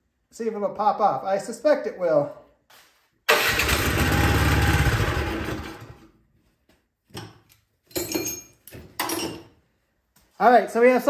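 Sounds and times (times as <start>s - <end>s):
snowblower engine firing: 3.3s - 6.0s.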